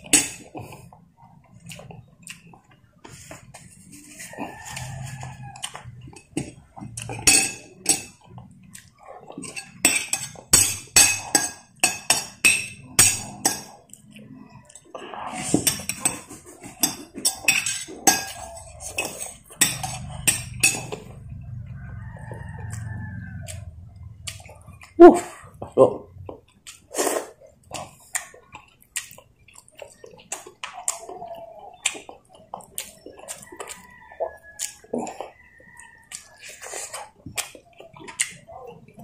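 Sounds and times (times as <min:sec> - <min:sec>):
metal spoon clinking on plate: 0:07.1 - 0:08.2, 0:16.8 - 0:21.0.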